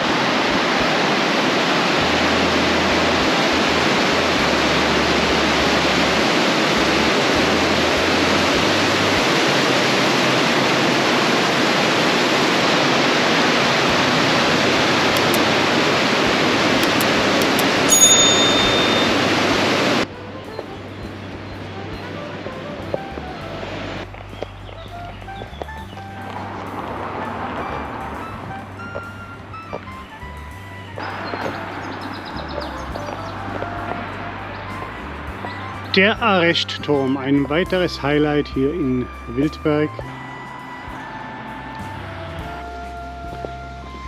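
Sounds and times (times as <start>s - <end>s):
river rushing in flood: 0.0s - 24.1s, 26.0s - 44.0s
high-pitched chirp: 16.8s - 19.3s.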